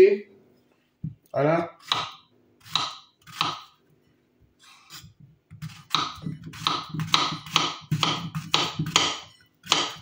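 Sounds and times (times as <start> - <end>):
knife chopping on wooden board: 1.8 - 3.8, 4.9 - 10.0.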